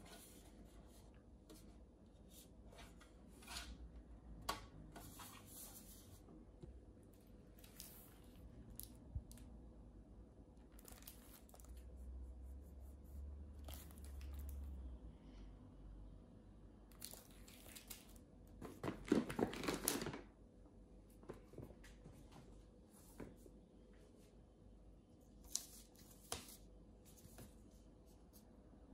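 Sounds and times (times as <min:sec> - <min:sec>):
plastic packets crinkling: 0:17.0 - 0:20.3.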